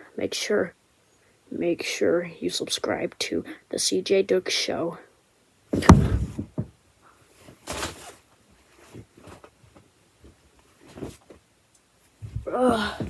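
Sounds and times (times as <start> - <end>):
clothing rustling: 5.7 - 13.0.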